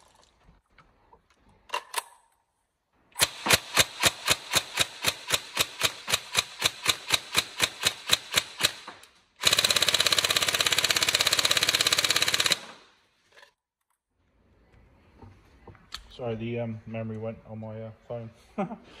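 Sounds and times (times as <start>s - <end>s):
airsoft full-auto burst: 3.2s - 13.0s
airsoft rifle shots: 3.2s - 13.0s.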